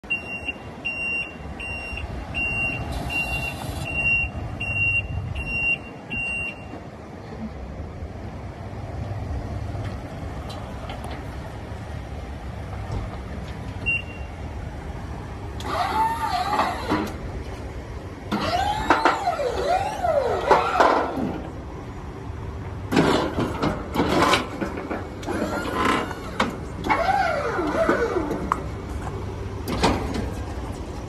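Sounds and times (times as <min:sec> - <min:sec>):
low outdoor rumble: 0:00.0 - 0:31.0
backup alarm beeping: 0:00.1 - 0:06.8, 0:13.8 - 0:14.4.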